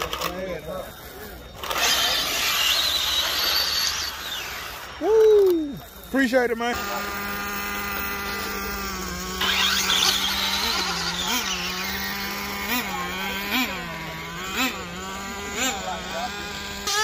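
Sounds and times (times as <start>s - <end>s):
small engine idling: 0.0s - 17.0s.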